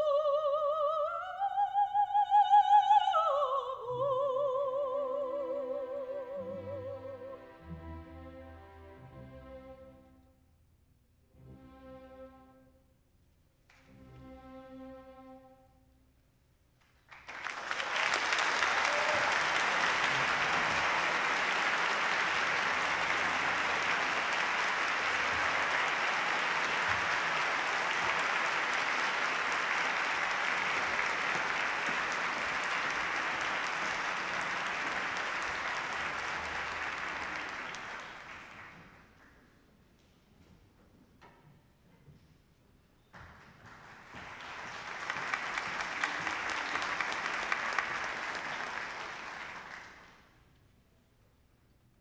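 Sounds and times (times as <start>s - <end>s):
audience applauding: 17.0s - 39.4s, 43.2s - 50.3s.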